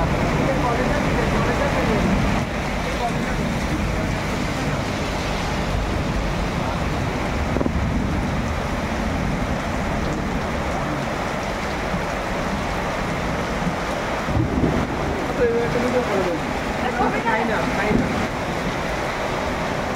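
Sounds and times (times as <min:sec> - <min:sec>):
deep rumble: 0:00.0 - 0:19.9
heavy rain pouring: 0:00.0 - 0:19.9.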